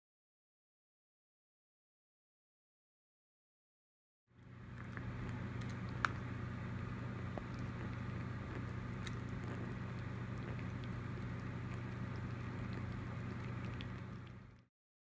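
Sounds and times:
steady low hum: 4.3s - 14.7s
wet chewing and licking: 4.6s - 14.7s.

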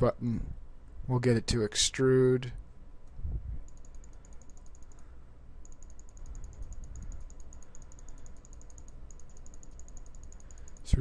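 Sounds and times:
low steady hum: 0.0s - 11.0s
rapid faint ticking: 3.6s - 11.0s.

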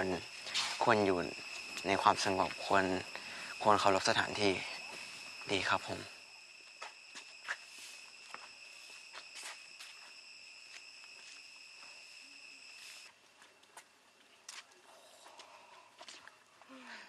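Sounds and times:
insects droning: 0.0s - 17.0s
light footsteps on path: 0.4s - 3.3s, 6.5s - 12.0s, 12.6s - 16.9s.

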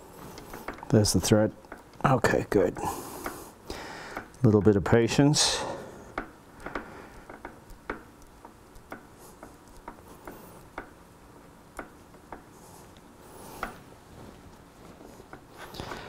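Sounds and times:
small metallic clicks: 6.1s - 11.0s.

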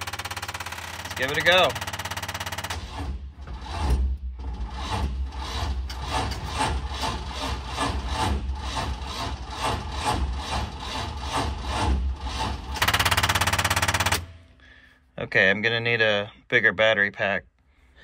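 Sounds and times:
engine cranking without firing: 0.0s - 14.4s.

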